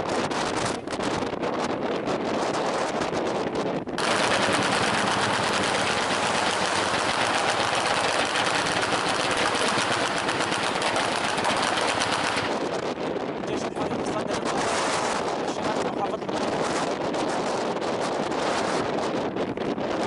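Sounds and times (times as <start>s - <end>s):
anti-aircraft gun firing burst: 4.0s - 12.8s.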